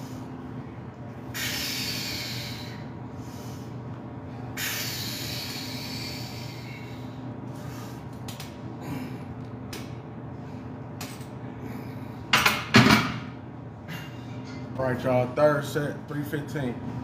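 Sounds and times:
steady low hum: 0:00.0 - 0:17.0
man hissing breaths: 0:01.2 - 0:08.1.

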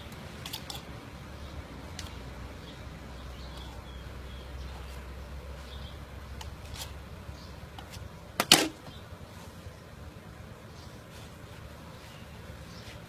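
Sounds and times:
knife scraping coconut husk: 0:06.4 - 0:07.0.

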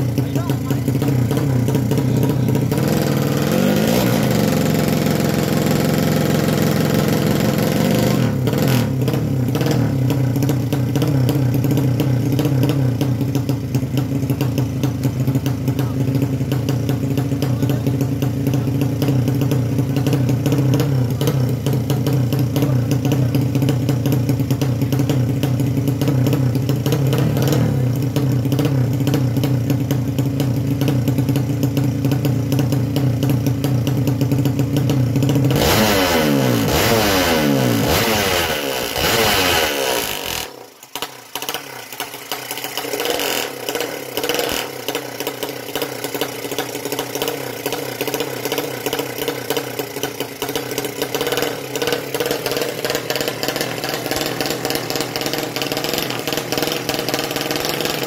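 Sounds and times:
motorcycle engine idling: 0:00.0 - 0:58.0.

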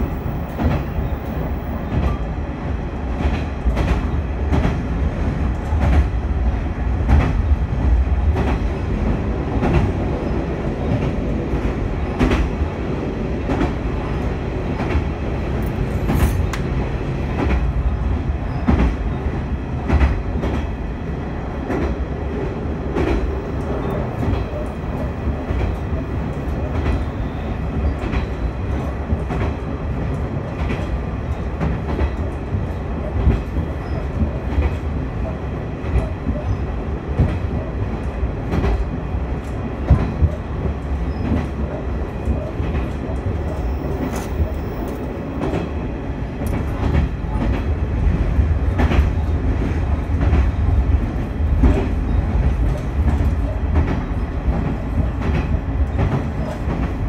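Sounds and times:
wheels rumbling on rails: 0:00.0 - 0:57.0
clicks and knocks from track: 0:03.1 - 0:06.2, 0:07.0 - 0:10.2, 0:13.4 - 0:17.7, 0:18.5 - 0:19.0, 0:19.8 - 0:20.8, 0:27.8 - 0:45.8, 0:46.4 - 0:57.0.

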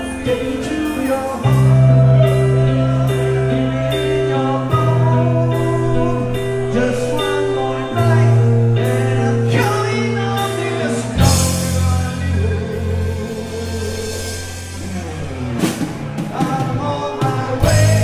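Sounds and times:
person singing: 0:00.0 - 0:15.5, 0:16.2 - 0:18.0
bass guitar long notes: 0:00.0 - 0:18.0
electric guitar: 0:00.0 - 0:18.0
drums striking: 0:11.2 - 0:18.0.

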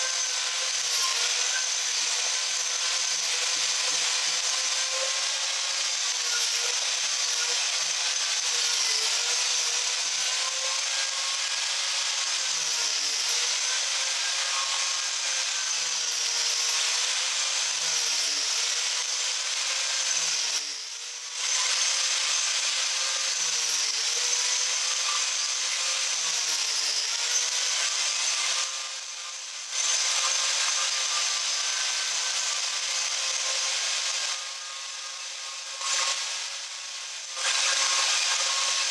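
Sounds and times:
angle grinder cutting wood: 0:00.0 - 0:38.9.

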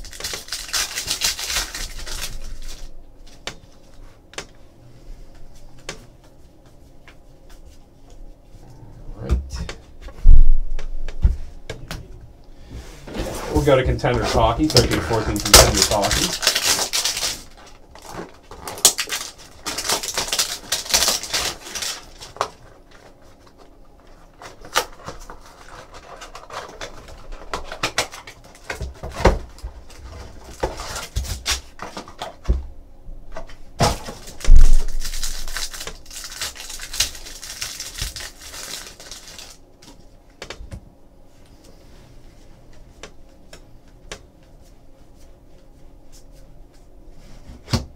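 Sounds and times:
foil packs crinkling: 0:00.0 - 0:02.9, 0:13.5 - 0:32.4, 0:33.8 - 0:40.0.

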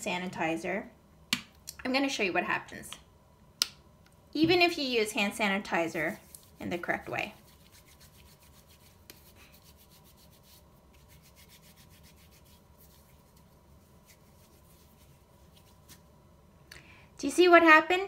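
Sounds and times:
hands rubbing together: 0:06.0 - 0:16.1.

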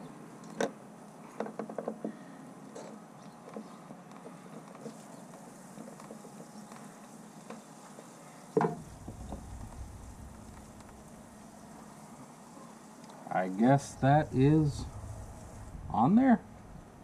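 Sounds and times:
low rumble: 0:08.8 - 0:11.9, 0:13.5 - 0:17.0.

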